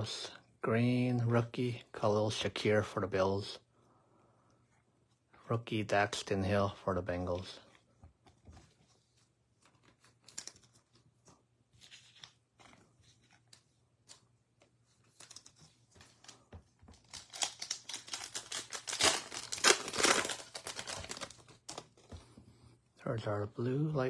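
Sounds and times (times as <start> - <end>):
foil wrapper tearing and crinkling: 17.0 - 22.0.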